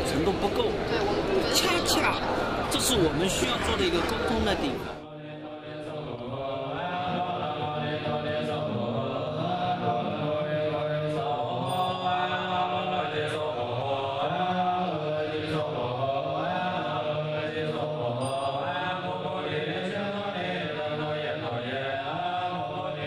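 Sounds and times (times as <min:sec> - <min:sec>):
monks chanting together: 0:04.6 - 0:23.0.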